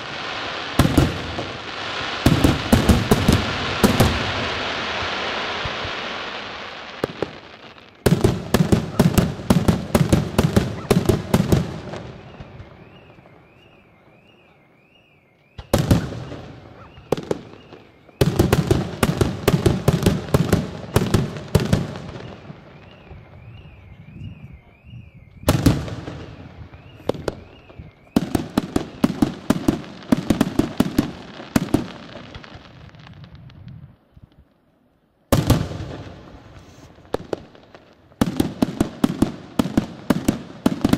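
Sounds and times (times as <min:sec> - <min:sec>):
fireworks crackle: 0:00.0 - 0:14.7, 0:15.4 - 0:34.8, 0:35.4 - 0:40.9
fireworks bursting: 0:00.0 - 0:34.7, 0:35.3 - 0:40.9.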